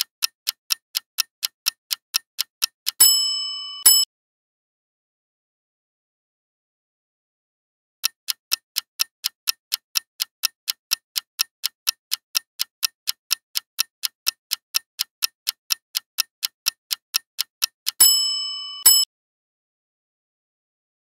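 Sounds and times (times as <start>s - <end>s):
clock ticking fast: 0.0s - 4.1s, 8.0s - 19.1s
bright bell-like ding: 3.1s - 4.1s, 18.0s - 19.0s.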